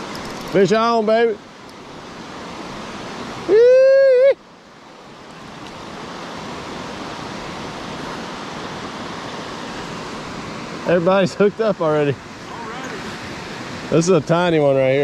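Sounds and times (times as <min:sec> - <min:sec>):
river water flowing: 0:00.0 - 0:15.0
person whooping: 0:03.5 - 0:04.4.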